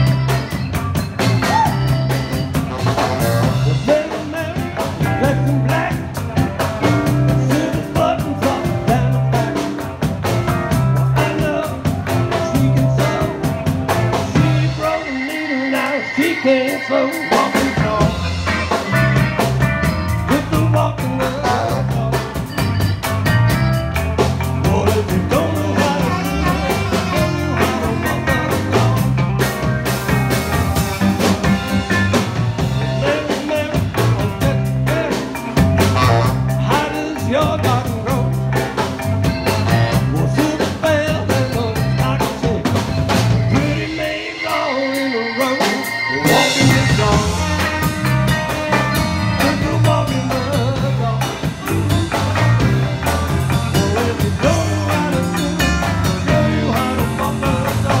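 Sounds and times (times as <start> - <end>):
saxophones: 0.0 - 4.1, 12.4 - 20.4, 25.3 - 37.1, 39.2 - 58.0
bass: 0.0 - 58.0
drum kit beat: 0.0 - 58.0.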